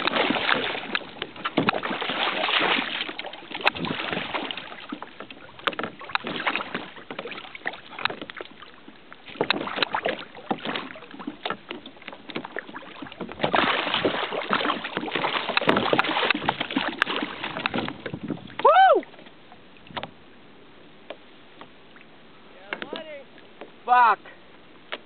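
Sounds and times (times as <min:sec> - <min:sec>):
water slapping against hull: 0:00.0 - 0:23.9, 0:24.6 - 0:25.0
wind on microphone: 0:13.0 - 0:19.1.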